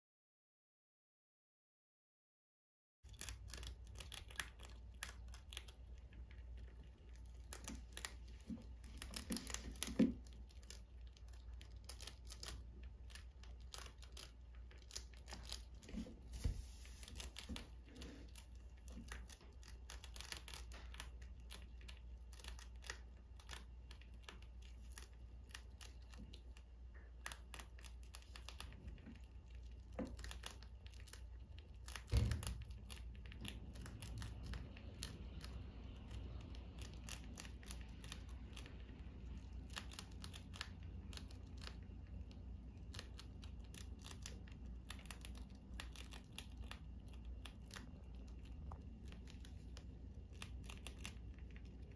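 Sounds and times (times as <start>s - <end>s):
rats chewing and nibbling: 3.0s - 51.9s
thump: 32.1s - 32.6s.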